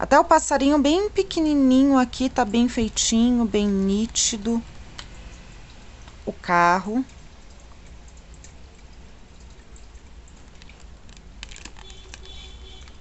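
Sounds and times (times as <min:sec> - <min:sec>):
faint room hum: 0:00.0 - 0:13.0
cards clicking and tapping: 0:10.4 - 0:13.0.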